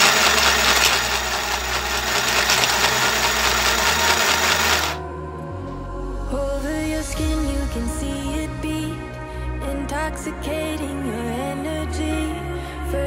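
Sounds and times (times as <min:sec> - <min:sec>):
sewing machine running: 0:00.0 - 0:05.0
music: 0:00.2 - 0:13.0.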